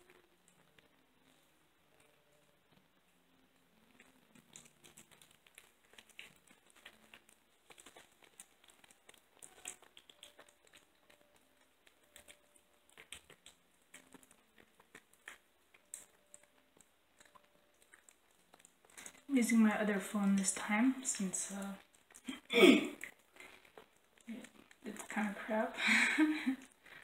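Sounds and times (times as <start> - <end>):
kitten eating wet smacking: 3.7 - 19.3, 23.0 - 25.4.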